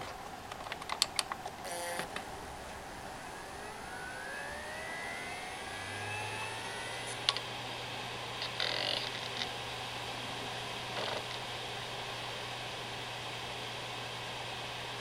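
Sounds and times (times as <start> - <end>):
hard drive clicks: 0.0 - 2.3
hard drive spinning up: 1.6 - 2.3, 3.2 - 9.5.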